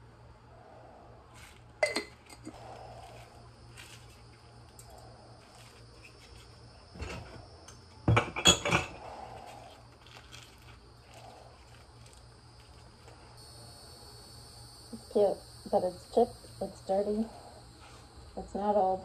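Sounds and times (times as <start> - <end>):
pots and utensils clinking: 1.8 - 2.6, 8.1 - 9.0.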